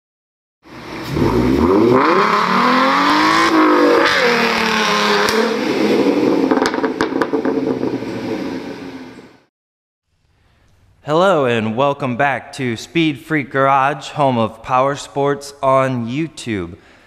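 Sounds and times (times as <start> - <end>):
car engine revving hard: 0.7 - 9.1
exhaust pops: 4.0 - 8.7.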